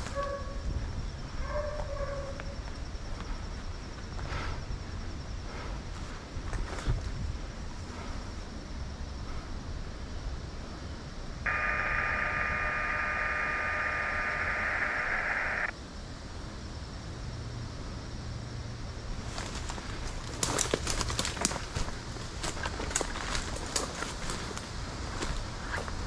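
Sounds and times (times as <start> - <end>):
radio static hiss with steady tone: 11.5 - 15.7.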